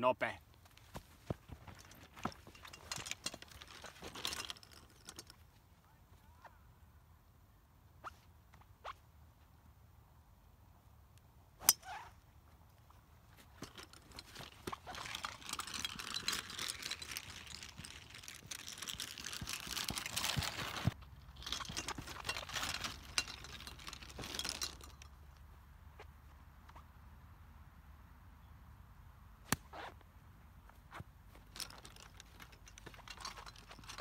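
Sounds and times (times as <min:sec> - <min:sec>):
golf clubs rattling in bag: 0:01.5 - 0:05.6, 0:13.4 - 0:25.2, 0:31.4 - 0:34.0.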